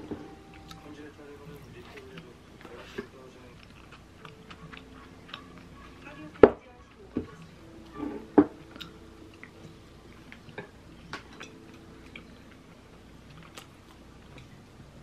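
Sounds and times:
person chewing: 0.5s - 6.0s, 13.2s - 14.6s.

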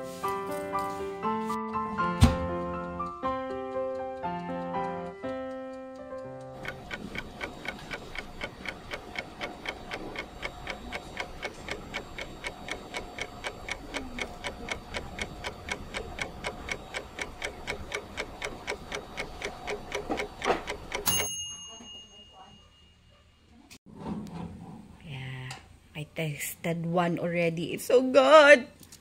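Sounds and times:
clock ticking fast: 2.5s - 21.2s.

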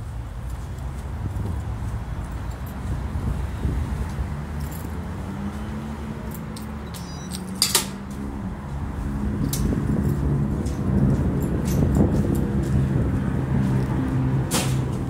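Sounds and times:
traffic hum: 0.0s - 15.0s
metal gate clanking shut: 6.9s - 8.0s
footsteps on tiled floor: 8.1s - 14.3s.

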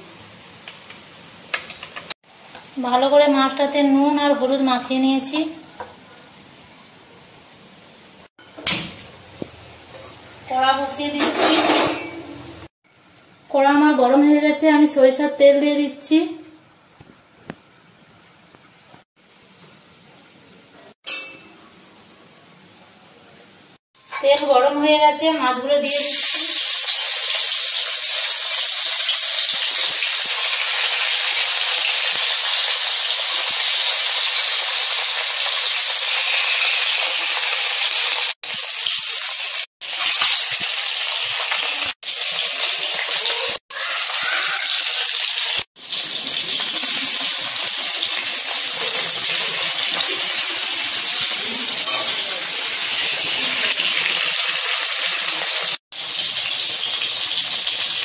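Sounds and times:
fish sizzling in oil: 25.8s - 58.0s.

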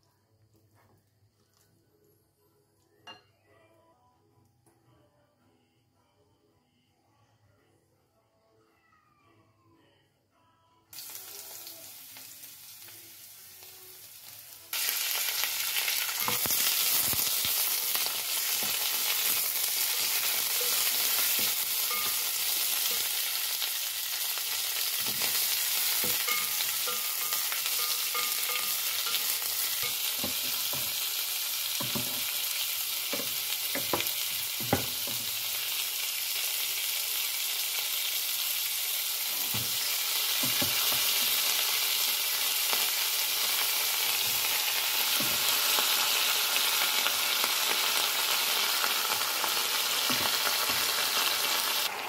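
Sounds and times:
vegetables sizzling in oil: 10.9s - 52.0s.

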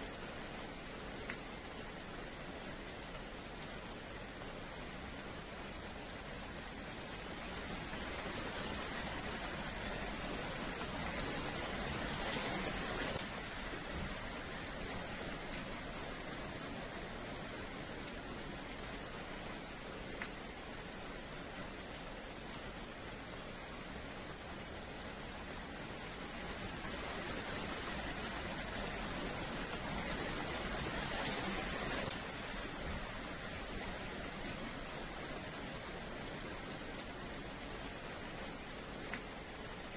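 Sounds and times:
rain on pavement and metal fence: 0.0s - 39.9s.

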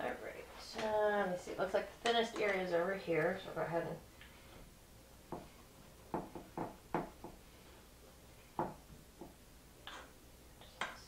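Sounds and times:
light knocks and taps: 6.1s - 7.4s.

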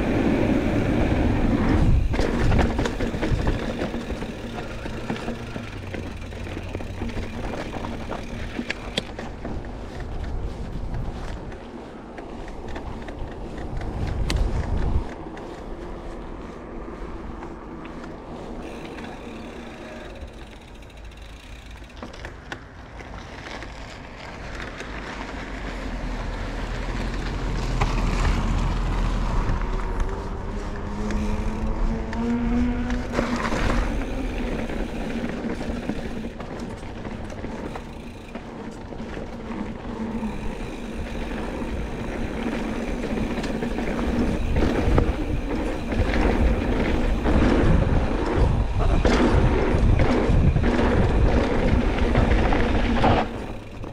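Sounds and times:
wind on microphone: 0.0s - 4.2s, 9.2s - 11.7s, 12.4s - 17.8s, 39.4s - 53.9s
bike bumping and rattling: 0.0s - 16.2s, 17.4s - 25.6s, 29.3s - 53.9s
bike tyres rolling: 0.0s - 53.9s.

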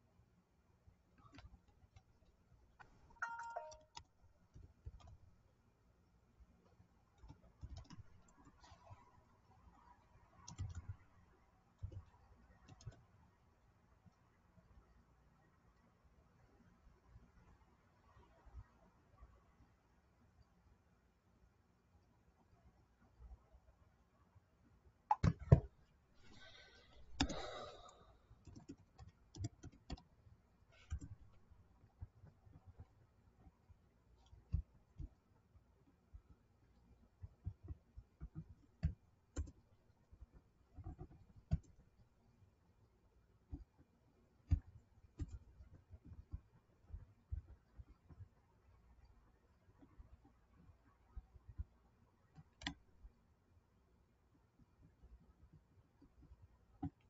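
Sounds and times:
two-note electronic chime: 3.2s - 3.9s.

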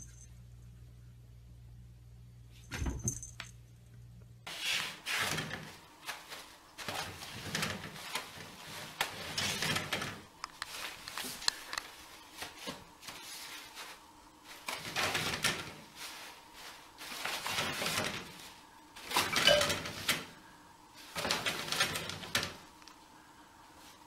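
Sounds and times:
toilet paper rustling off roll: 4.5s - 20.4s, 21.0s - 22.8s.

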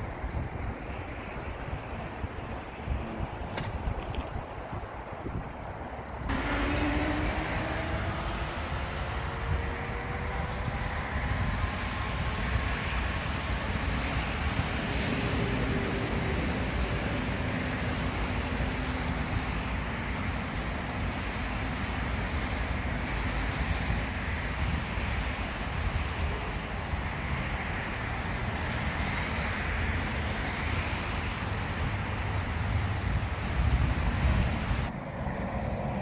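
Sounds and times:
bicycle road rumble: 0.0s - 36.0s
traffic noise: 0.0s - 36.0s
wind while cycling: 0.0s - 36.0s.

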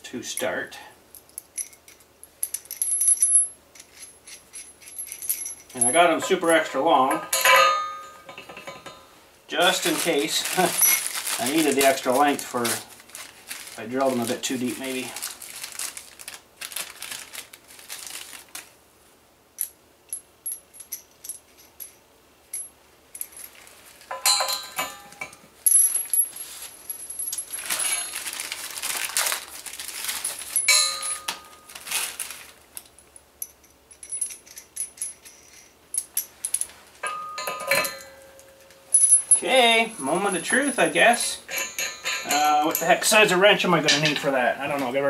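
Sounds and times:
steel nuts and washers clinking: 0.3s - 12.8s, 19.6s - 28.2s, 30.2s - 31.8s, 32.8s - 44.8s.

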